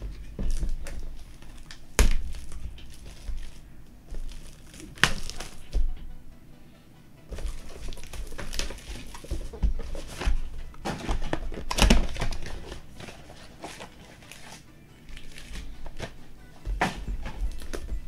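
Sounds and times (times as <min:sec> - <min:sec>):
packaging crinkling and rustling: 0:00.0 - 0:06.0, 0:07.3 - 0:18.0
packaging ripping: 0:00.5 - 0:05.8, 0:07.3 - 0:16.2.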